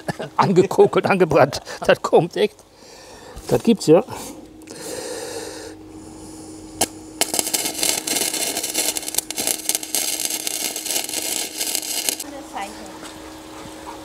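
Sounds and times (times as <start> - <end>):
steady hum: 0.0 - 14.0
arc welding crackling: 6.8 - 12.7.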